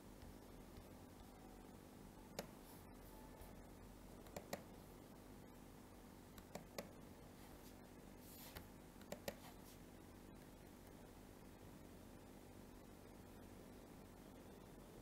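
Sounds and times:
faint low hum: 0:00.0 - 0:15.0
computer mouse clicks: 0:04.2 - 0:04.7, 0:06.4 - 0:07.0, 0:08.6 - 0:09.5.

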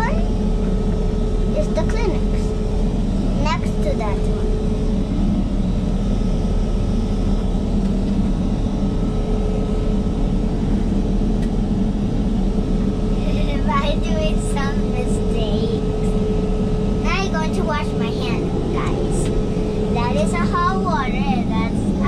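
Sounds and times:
airliner cabin rush: 0:16.7 - 0:22.0
person speaking: 0:17.1 - 0:22.0.

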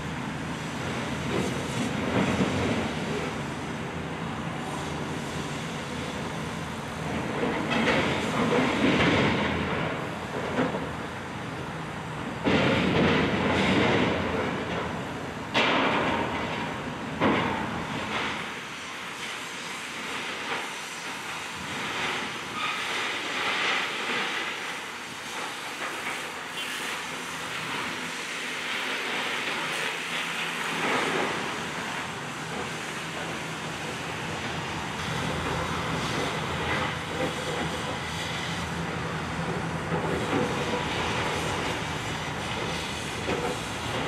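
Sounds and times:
cutting torch hissing: 0:17.8 - 0:44.0.

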